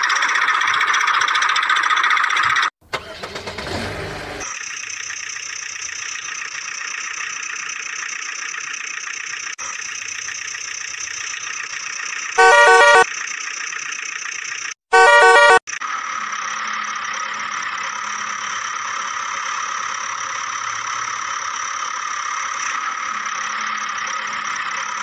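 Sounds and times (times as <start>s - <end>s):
vehicle engine starting and running: 0.0s - 25.0s
vehicle horn: 12.4s - 13.1s, 14.9s - 15.6s.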